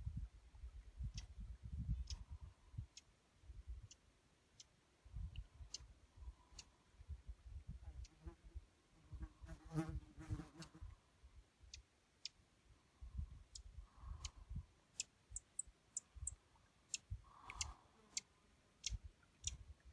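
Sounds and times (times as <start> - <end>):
wind buffeting microphone: 0.0 - 3.9.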